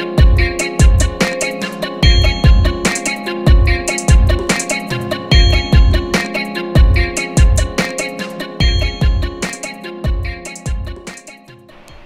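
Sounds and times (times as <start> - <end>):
plucked melody: 2.0 - 7.7, 8.6 - 9.6.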